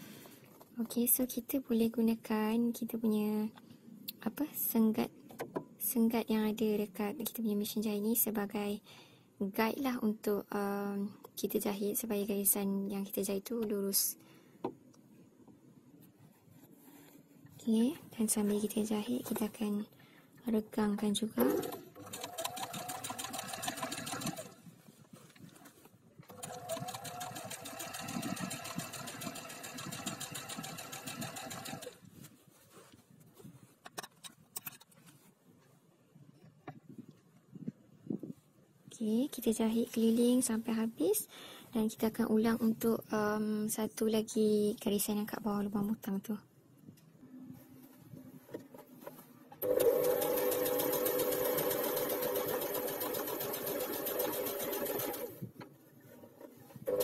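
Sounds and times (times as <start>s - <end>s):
sewing machine stitching: 21.4s - 24.6s, 26.2s - 32.0s, 49.6s - 55.4s.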